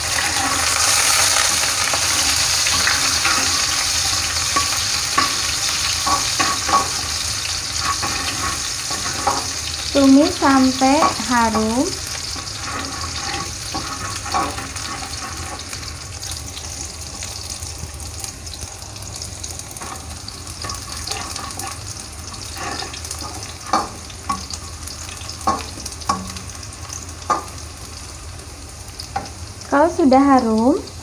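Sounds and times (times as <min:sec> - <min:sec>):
metal spatula scraping wok: 0:00.0 - 0:16.0, 0:19.8 - 0:24.7
shallots sizzling in hot oil: 0:00.0 - 0:31.0
spatula knocking against wok: 0:25.4 - 0:26.5.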